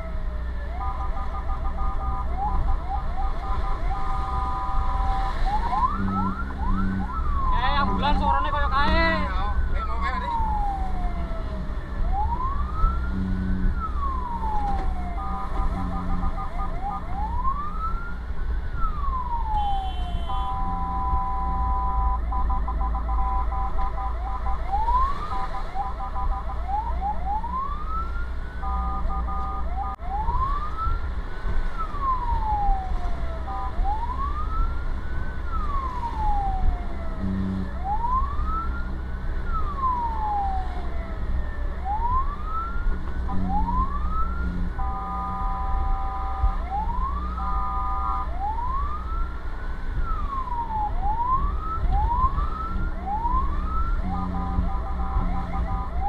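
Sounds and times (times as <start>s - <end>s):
fire truck siren wailing: 0.0s - 56.0s
truck engine and road noise: 0.0s - 56.0s
multi-tone horn blasts: 0.7s - 2.5s, 13.0s - 13.8s, 15.1s - 17.0s, 19.5s - 26.8s, 28.6s - 30.0s, 33.5s - 33.9s, 37.1s - 37.8s, 43.2s - 46.7s, 47.4s - 48.3s, 54.0s - 56.0s.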